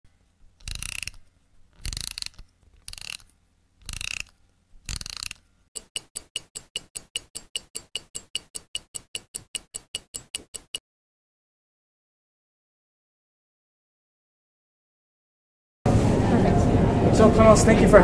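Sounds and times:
watch crown ratcheting: 0.4s - 10.8s
watch ticking: 0.4s - 10.8s.

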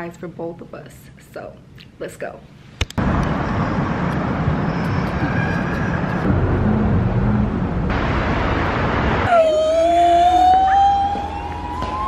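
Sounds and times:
city street traffic: 1.7s - 12.0s
siren wailing: 9.2s - 12.0s.

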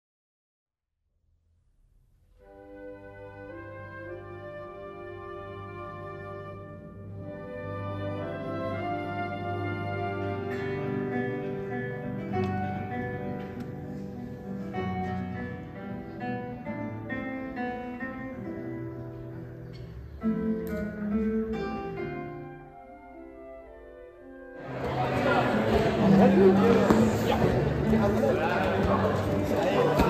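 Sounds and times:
classical guitar duet: 5.6s - 23.2s, 24.6s - 30.0s.

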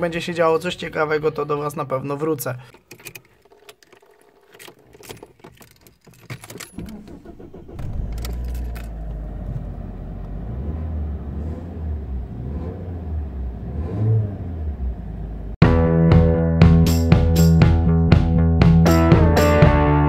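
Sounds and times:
car keys jangling: 2.7s - 9.4s
car starter turning: 2.7s - 10.5s.

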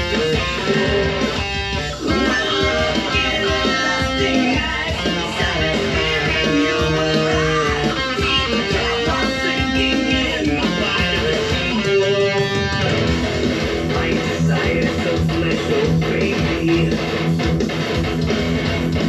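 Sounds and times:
electric guitar melody: 0.0s - 19.0s.

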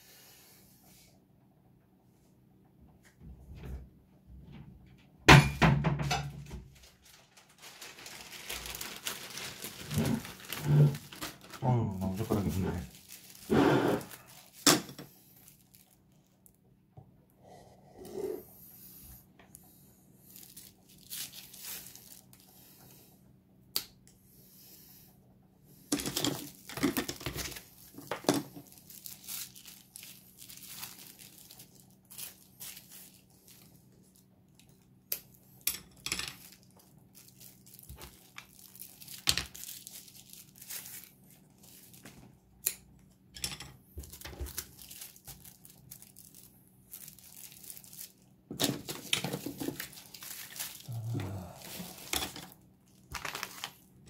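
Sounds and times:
faint steady hum: 0.0s - 54.0s
plastic packaging crinkling and tearing: 6.4s - 16.6s, 20.3s - 22.5s, 25.9s - 35.4s, 36.3s - 42.4s, 44.0s - 54.0s.

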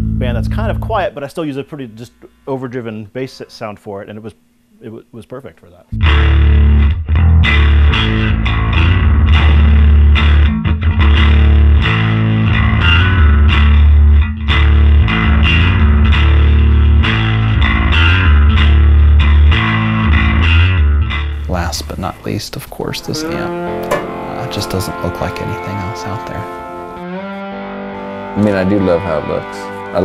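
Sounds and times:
electric bass riff: 0.0s - 1.0s, 5.9s - 21.7s, 22.9s - 30.0s.

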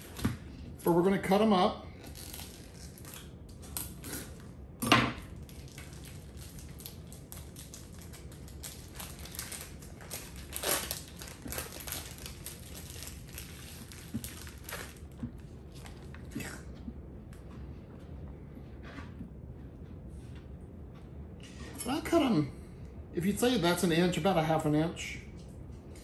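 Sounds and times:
plastic wrapper crinkling and tearing: 2.0s - 4.0s, 5.3s - 16.3s.

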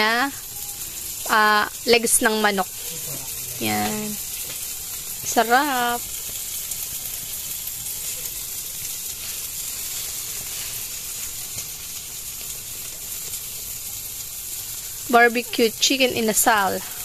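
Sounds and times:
chicken sizzling over charcoal: 0.0s - 17.0s.

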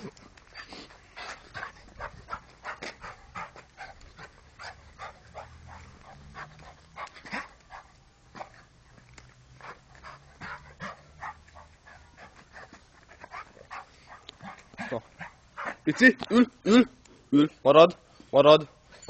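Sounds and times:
dog panting: 0.5s - 8.7s, 9.6s - 16.2s.

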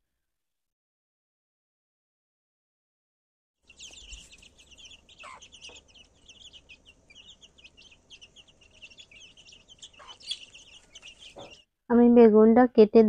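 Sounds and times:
chicks peeping: 3.6s - 11.6s
hen clucking: 3.7s - 11.6s.

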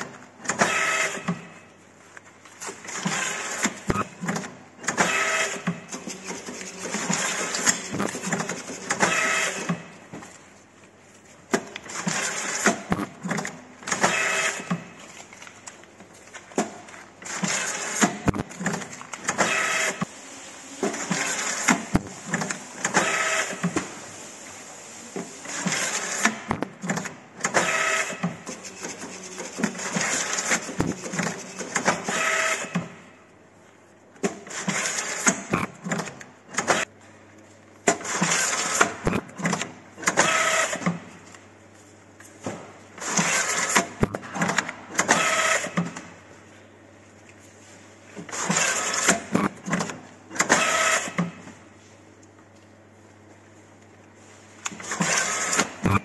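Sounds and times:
machine motor whirring: 2.9s - 9.9s, 25.4s - 32.9s, 48.3s - 51.3s, 54.8s - 56.0s.

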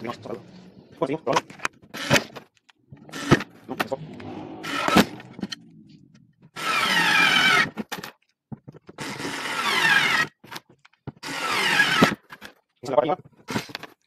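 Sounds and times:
cordless screwdriver motor whine: 9.0s - 10.3s, 11.2s - 12.2s.

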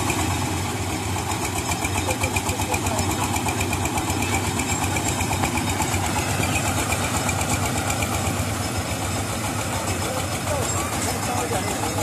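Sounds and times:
harvester engine running: 0.0s - 12.0s.

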